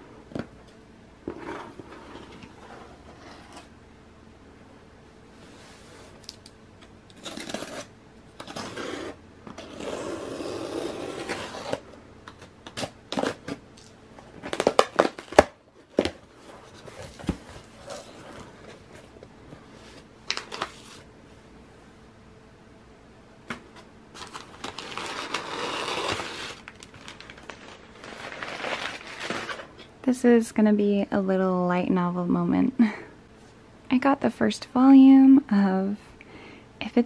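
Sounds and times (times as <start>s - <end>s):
packing tape tearing: 7.1s - 16.2s, 24.2s - 29.8s
paper rustling: 24.2s - 29.7s.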